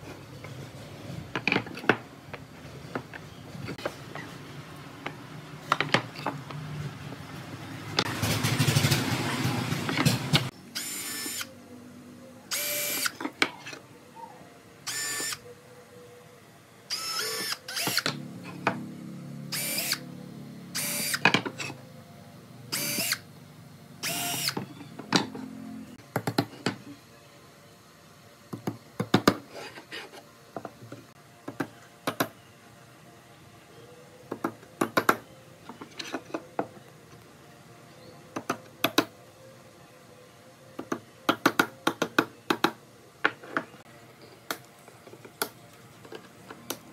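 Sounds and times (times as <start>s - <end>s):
cordless drill drilling wood: 10.8s - 11.5s, 12.5s - 13.1s, 14.9s - 15.4s, 16.9s - 18.1s, 19.5s - 20.0s, 20.8s - 21.2s, 22.7s - 23.2s, 24.0s - 24.6s.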